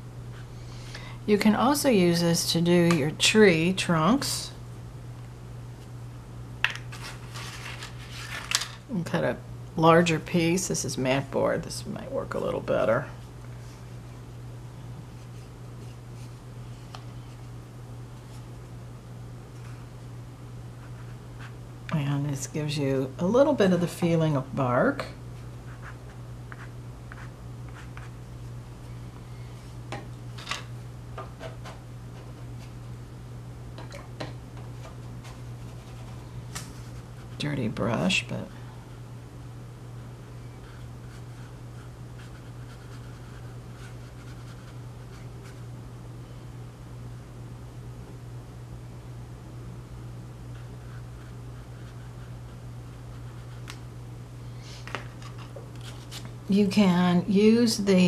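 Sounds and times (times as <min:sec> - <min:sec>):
low electrical hum: 0:00.0 - 0:58.0
paintbrush scratching on paper: 0:40.6 - 0:45.6, 0:50.5 - 0:53.7.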